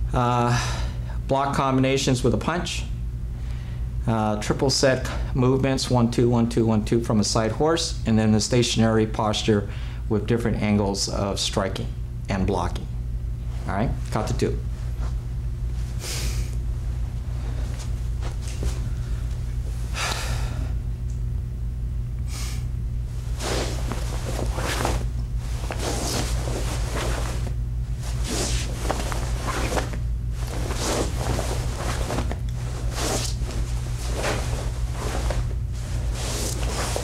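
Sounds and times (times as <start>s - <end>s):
steady low hum: 0.0s - 37.0s
uniform swishing: 23.2s - 37.0s.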